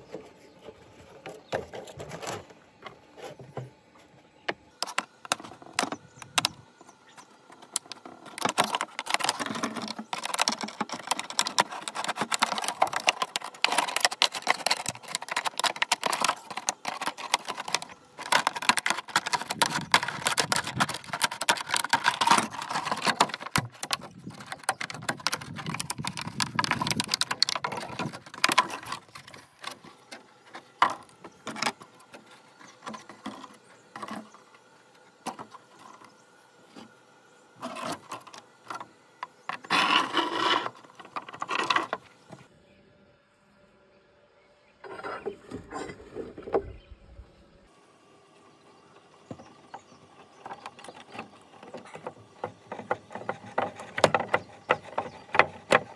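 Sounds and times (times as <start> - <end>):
plastic crinkling: 7.8 - 29.9.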